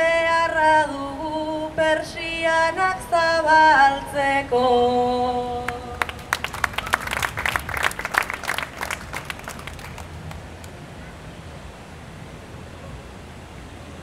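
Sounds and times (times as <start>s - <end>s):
woman singing: 0.0s - 6.1s
audience clapping: 5.7s - 10.8s.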